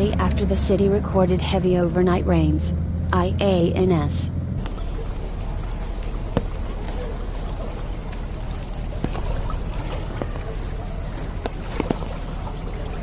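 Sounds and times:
steady low rumble: 0:00.0 - 0:13.0
floodwater sloshing and splashing: 0:04.6 - 0:13.0.

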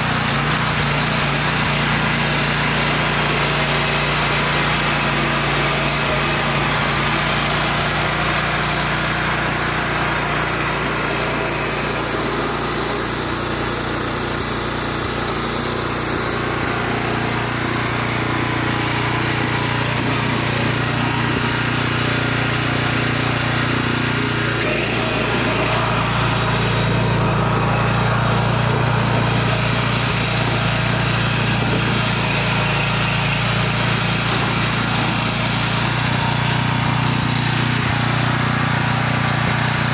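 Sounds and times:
tiller engine running: 0:00.0 - 0:39.9.

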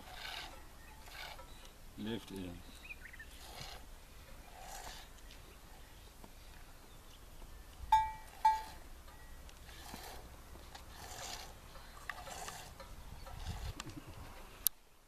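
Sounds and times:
short ringing pings: 0:07.9 - 0:09.3.

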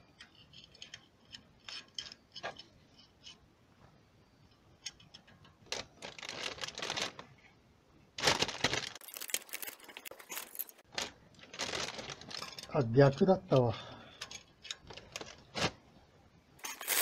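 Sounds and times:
rustling and scraping: 0:04.9 - 0:07.6, 0:08.2 - 0:12.8, 0:14.2 - 0:16.0, 0:16.6 - 0:17.0.

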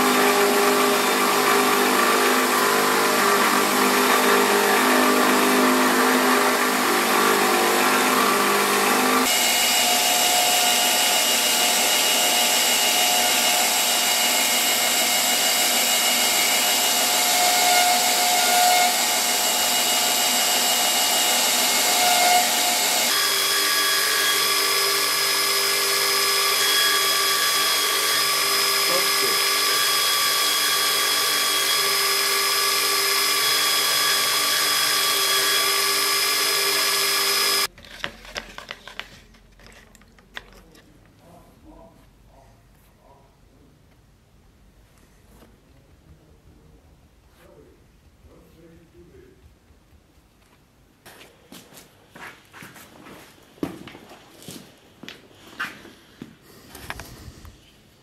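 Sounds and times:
belt grinder grinding steel blade: 0:00.0 - 0:37.7.

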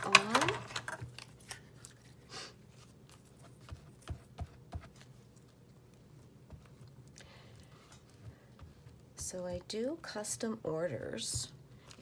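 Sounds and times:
soft paper rustle: 0:00.0 - 0:04.0.

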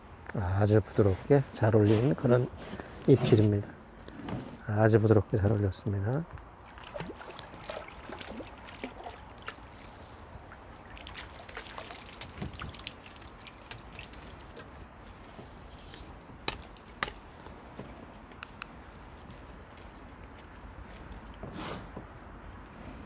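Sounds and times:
water dripping and trickling: 0:06.6 - 0:17.8.

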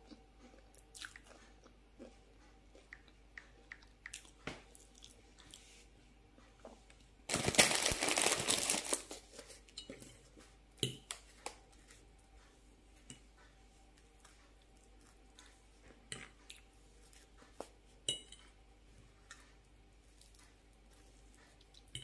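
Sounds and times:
plastic packaging crinkling: 0:07.3 - 0:09.2.

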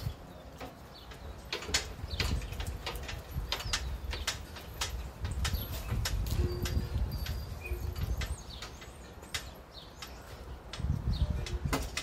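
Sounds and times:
trailer clicks and rattles: 0:00.0 - 0:12.0.

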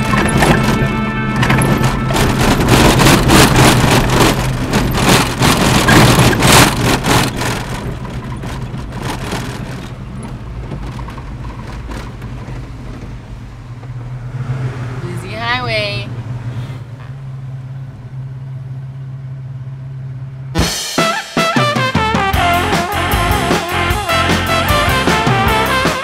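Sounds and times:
car body knocking on rough road: 0:00.0 - 0:14.1
car engine from inside cabin: 0:00.0 - 0:20.6.

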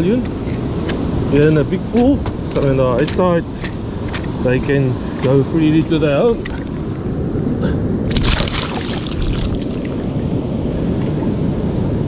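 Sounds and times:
surf washing: 0:00.0 - 0:12.0
wind buffeting microphone: 0:00.0 - 0:12.0
crackling splashy burst: 0:08.1 - 0:09.9.

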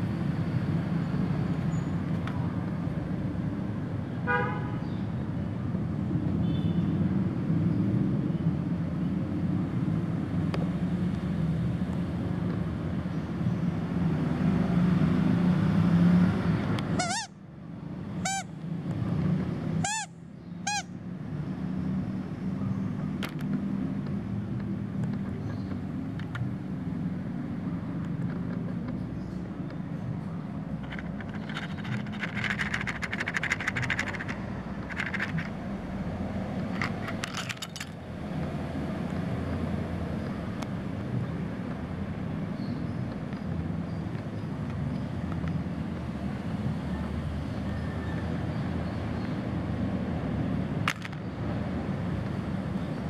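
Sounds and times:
plastic toys crackling and clicking: 0:30.8 - 0:35.6, 0:36.6 - 0:38.0, 0:50.9 - 0:51.2.

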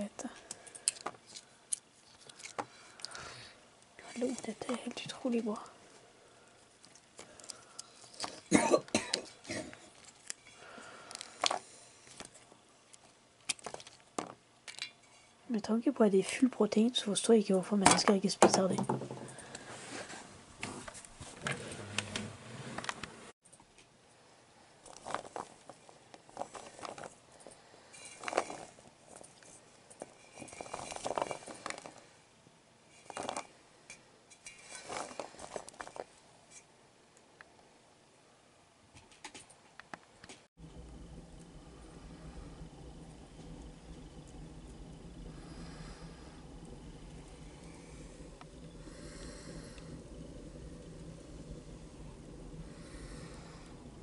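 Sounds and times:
cough-like burst: 0:08.5 - 0:09.8
nuts rattling in metal bowl: 0:28.0 - 0:29.3, 0:30.0 - 0:32.0, 0:32.9 - 0:33.5, 0:34.5 - 0:36.1.

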